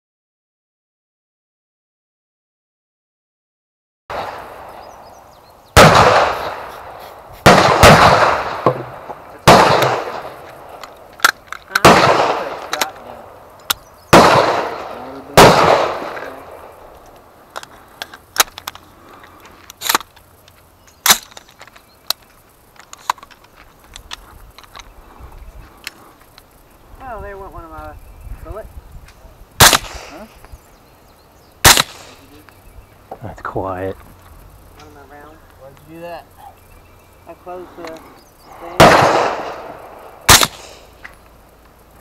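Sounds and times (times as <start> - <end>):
distant gunshots: 4.1 - 4.9, 5.7 - 10.8, 11.7 - 13.3, 14.1 - 16.9, 29.6 - 30.3, 31.6 - 32.3, 38.7 - 41.0
loud gunshots with echo: 5.8 - 10.8, 11.8 - 13.0, 14.1 - 16.8, 38.7 - 40.9.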